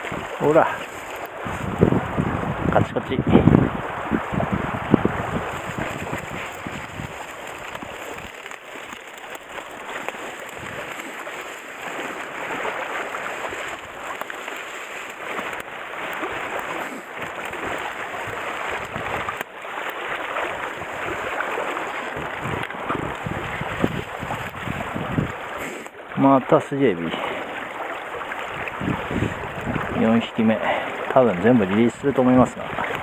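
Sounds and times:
net splashing and rustling: 0.0s - 2.2s, 4.8s - 25.9s
shallow stream running: 0.0s - 33.0s.

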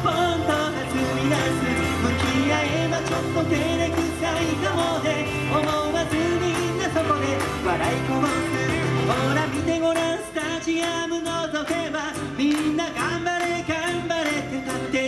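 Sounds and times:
bass line: 0.0s - 10.2s
guitar: 0.0s - 15.0s
person singing: 0.0s - 15.0s.

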